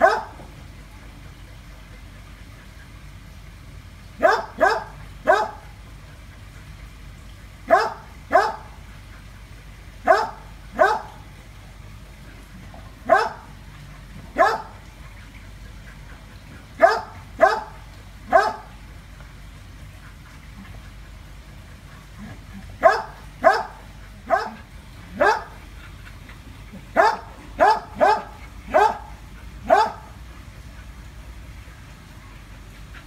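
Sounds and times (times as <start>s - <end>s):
dog barking: 0.0s - 0.4s, 4.2s - 5.6s, 7.7s - 8.7s, 10.0s - 11.2s, 13.0s - 13.5s, 14.4s - 14.8s, 16.8s - 18.7s, 22.8s - 24.6s, 25.2s - 25.5s, 27.0s - 30.1s.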